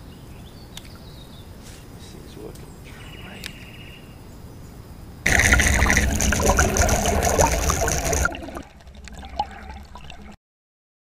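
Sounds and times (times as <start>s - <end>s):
water rushing and bubbling: 5.3s - 10.4s.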